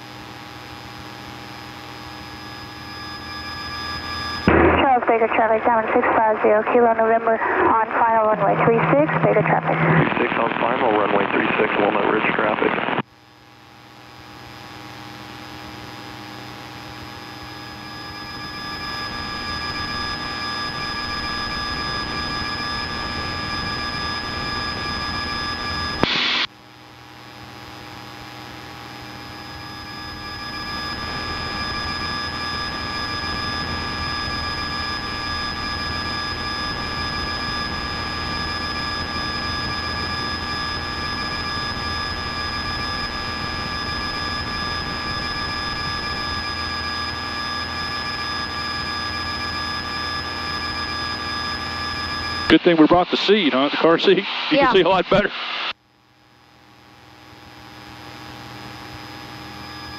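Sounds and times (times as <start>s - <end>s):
whining tones: 0.4s - 13.1s, 14.4s - 26.5s, 28.4s - 55.8s
airplane engine and propeller droning: 4.1s - 12.2s
burst of noise: 4.4s - 5.1s, 7.3s - 13.0s, 25.9s - 26.5s.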